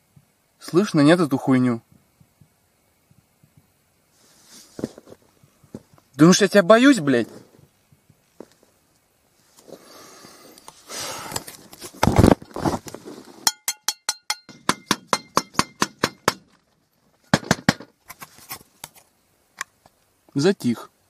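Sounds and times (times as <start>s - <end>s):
rustling: 4.1s - 6.2s, 7.1s - 13.5s, 16.4s - 20.1s
ringing metallic bangs: 13.5s - 16.4s.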